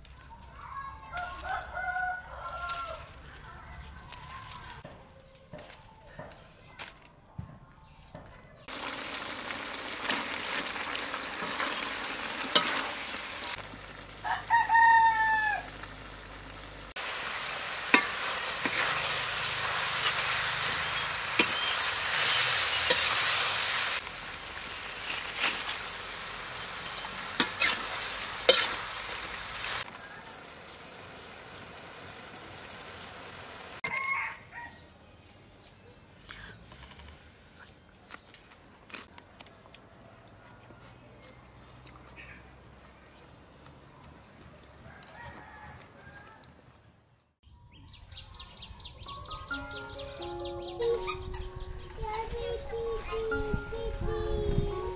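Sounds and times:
rooster crowing: 1.1 - 3.2, 14.2 - 15.8, 33.8 - 34.8, 44.8 - 46.5
food sizzling in a wok: 8.7 - 33.8
spatula scraping metal wok: 11.4 - 13.6, 17.9 - 24.0, 26.5 - 29.9.

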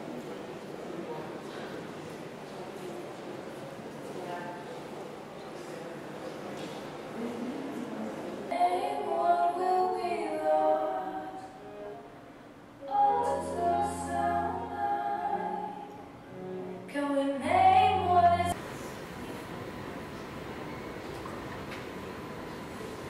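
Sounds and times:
wordless choir singing: 12.8 - 16.0.

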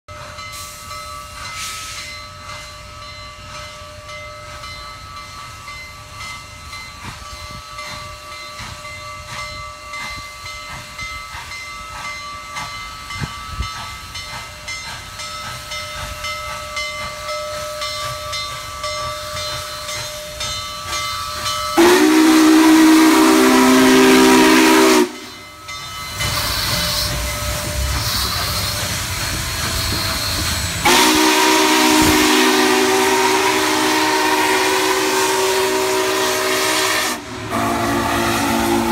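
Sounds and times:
steam locomotive passing: 0.1 - 38.9
steam whistle chord: 21.7 - 25.6, 26.3 - 38.9.

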